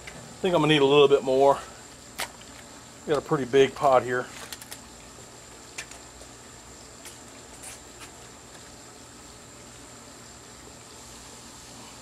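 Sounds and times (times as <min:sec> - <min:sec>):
low hiss of fire: 0:10.6 - 0:12.0.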